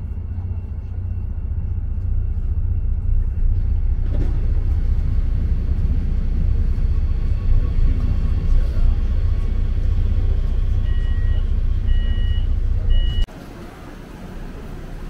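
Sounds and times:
train low rumble: 0:00.0 - 0:15.0
two-tone electronic beeps: 0:10.8 - 0:13.3.

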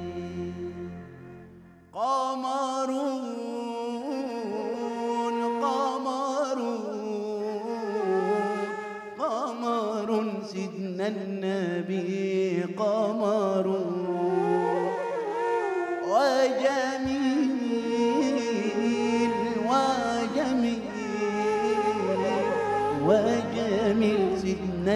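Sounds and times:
violin: 0:00.0 - 0:02.0, 0:04.4 - 0:09.2, 0:13.8 - 0:24.9
man singing ornamented melody: 0:00.0 - 0:24.9.

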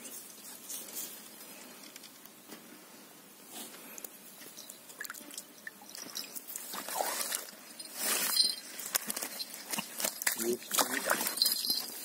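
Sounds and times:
water sloshing and streaming: 0:04.6 - 0:11.8
splashes and drips: 0:04.9 - 0:07.6, 0:09.7 - 0:11.8.

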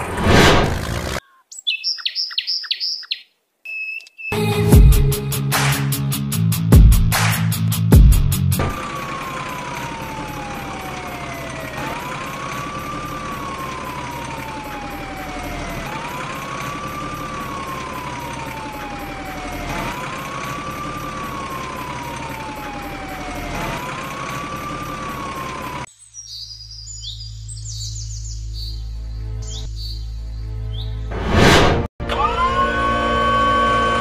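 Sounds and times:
steady engine-like noise: 0:08.4 - 0:25.9
siren wailing: 0:08.6 - 0:25.9.

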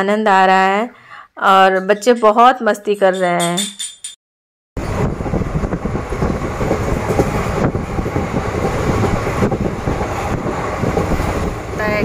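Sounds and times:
train rumble: 0:04.8 - 0:12.0.

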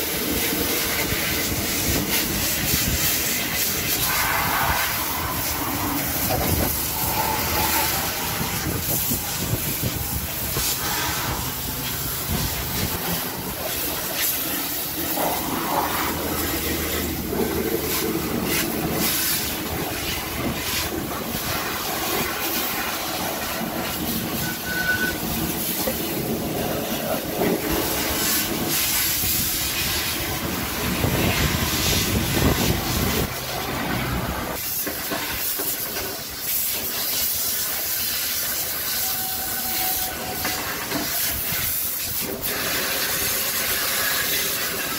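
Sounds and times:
hose water spraying on car: 0:00.0 - 0:44.9.

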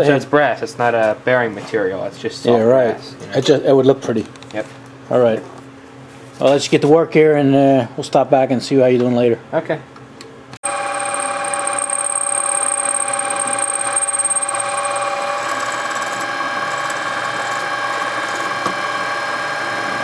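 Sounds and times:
drill press drilling metal: 0:10.6 - 0:19.4.

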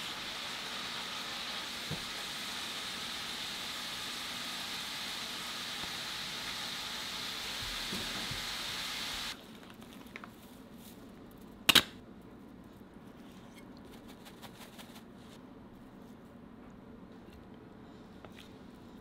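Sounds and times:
steady hiss: 0:00.0 - 0:09.4.

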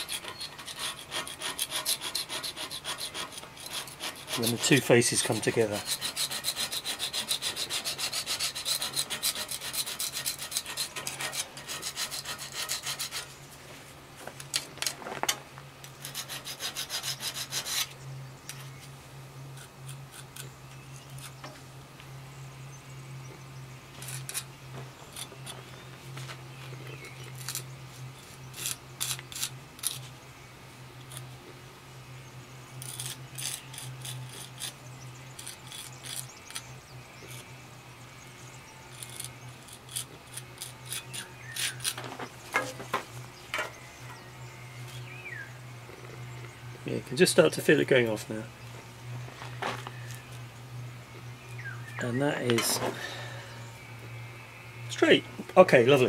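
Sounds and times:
scraper blade scraping stone: 0:00.0 - 0:13.4, 0:15.9 - 0:18.0, 0:19.6 - 0:21.4, 0:24.0 - 0:24.5, 0:25.1 - 0:25.8, 0:27.0 - 0:30.1, 0:31.0 - 0:31.3, 0:32.8 - 0:37.5, 0:38.9 - 0:42.8.

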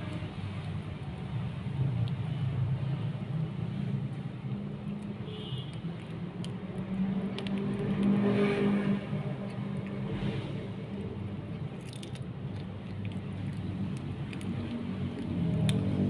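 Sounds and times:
kitten chewing crunchily: 0:04.0 - 0:16.0.

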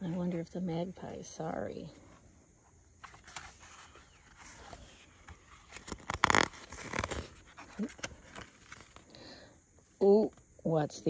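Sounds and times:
paper page turning: 0:03.0 - 0:09.1.

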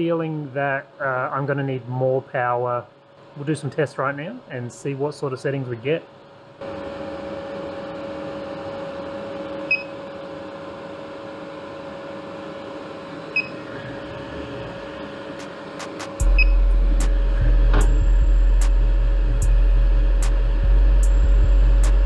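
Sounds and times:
equipment hum with steady tone: 0:00.0 - 0:22.0
loud low rumble: 0:16.2 - 0:22.0.

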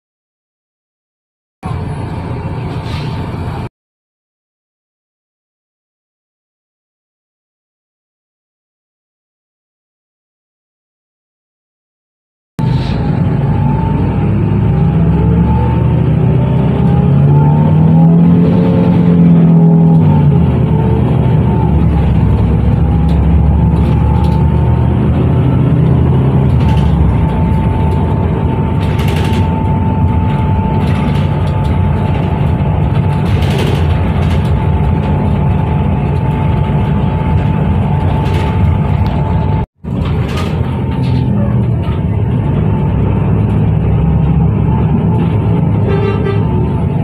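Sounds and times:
bus engine and road rumble: 0:01.6 - 0:03.7, 0:12.6 - 0:47.0.

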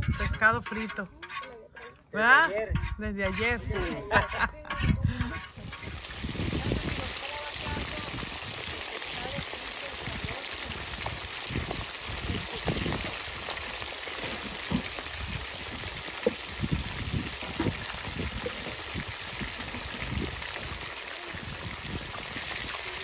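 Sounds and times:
fish deep-frying in oil: 0:05.4 - 0:23.0.

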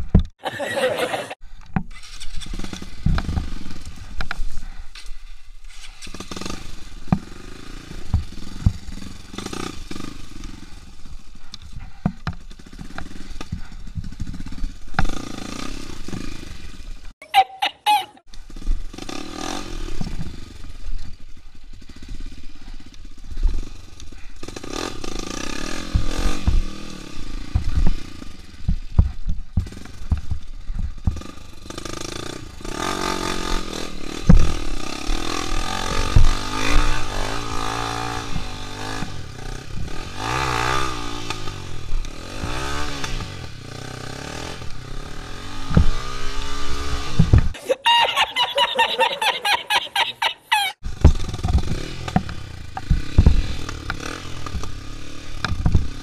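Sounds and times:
motorcycle engine revving: 0:01.9 - 0:04.8, 0:05.6 - 0:17.1, 0:18.3 - 0:47.6, 0:50.8 - 0:56.0
bike knocking and clattering: 0:07.0 - 0:09.3, 0:11.0 - 0:15.3, 0:25.8 - 0:32.4, 0:50.9 - 0:56.0.

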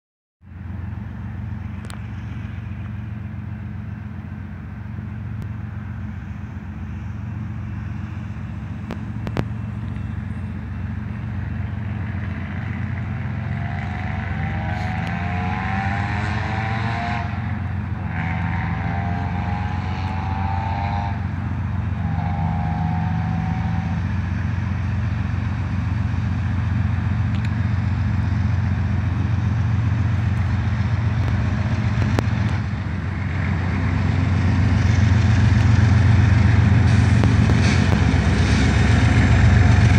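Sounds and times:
diesel locomotive rumble: 0:00.4 - 0:39.9
locomotive air horn blasts: 0:14.4 - 0:24.2.

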